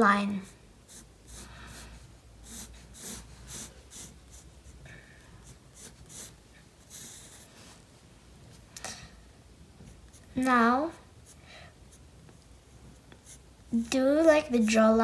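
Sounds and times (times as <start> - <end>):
pencil scratching on paper: 0.3 - 4.8, 5.4 - 7.8, 9.9 - 10.5, 11.2 - 14.0.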